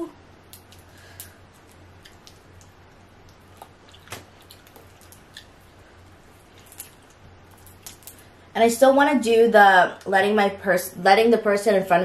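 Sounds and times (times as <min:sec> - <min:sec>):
crawfish shells crackling: 0:00.4 - 0:08.3
wet squishes: 0:00.4 - 0:08.3.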